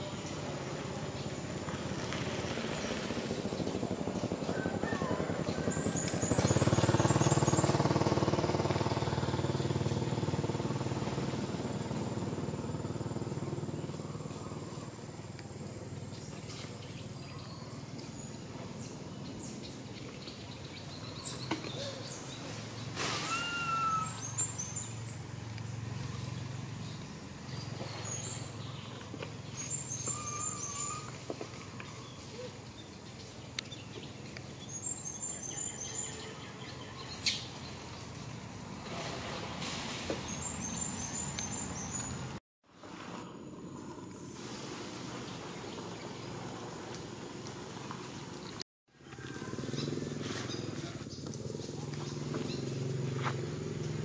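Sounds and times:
motor low hum: 0.0 - 21.1
brief bird call: 23.0 - 24.6
high bird chirps: 23.2 - 25.0.

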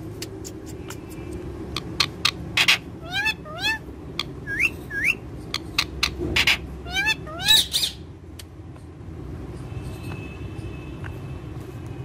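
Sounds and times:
parakeets screeching: 1.7 - 8.1.

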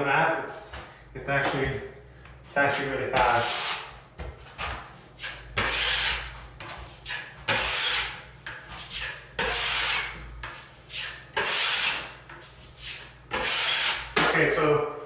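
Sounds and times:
taping knife scraping drywall: 3.1 - 4.0, 4.6 - 14.6.

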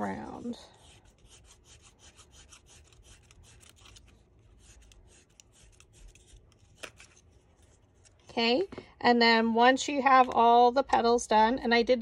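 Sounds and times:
stylus scratching on paper: 0.0 - 8.6.

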